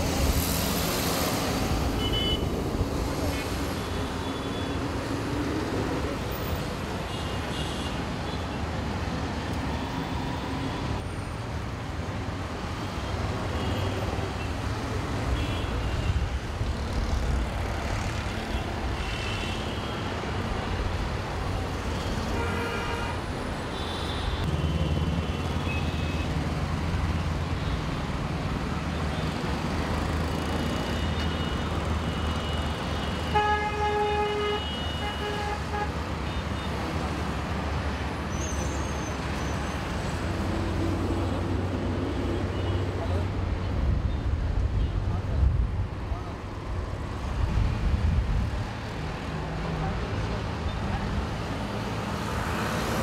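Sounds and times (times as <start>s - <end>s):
vehicle horns tooting: 2.0s - 2.5s.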